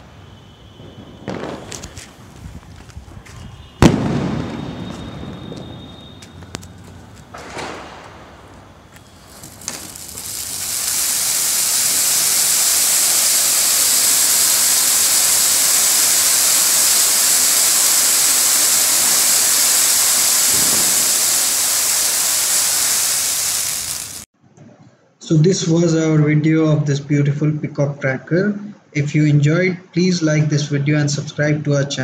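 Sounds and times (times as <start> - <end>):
firework spark spray hissing: 0.0 - 24.3
firework sputtering and popping: 0.8 - 24.3.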